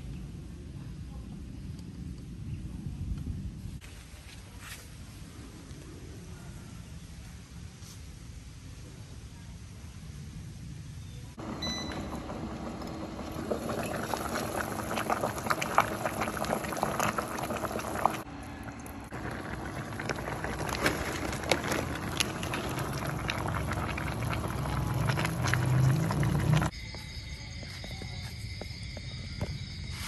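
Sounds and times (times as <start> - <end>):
faint steady hum: 9.3 - 29.8
water boiling hard in pot: 11.4 - 26.7.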